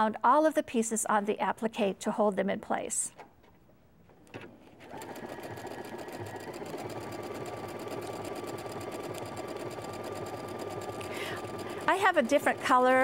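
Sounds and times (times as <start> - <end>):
sewing machine running: 4.8 - 13.0.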